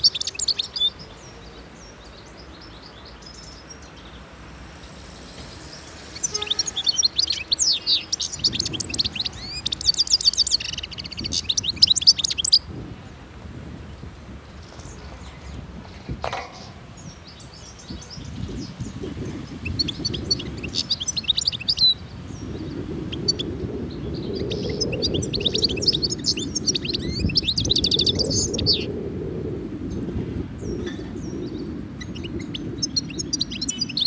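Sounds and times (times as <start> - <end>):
finch twittering: 5.7 - 12.6, 17.5 - 28.9, 32.0 - 34.0.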